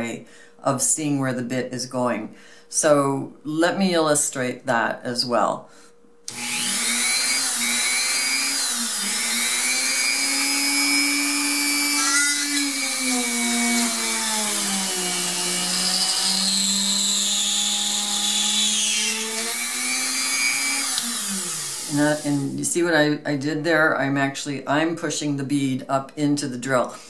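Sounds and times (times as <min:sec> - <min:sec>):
drill press motor whine: 0:06.3 - 0:22.2.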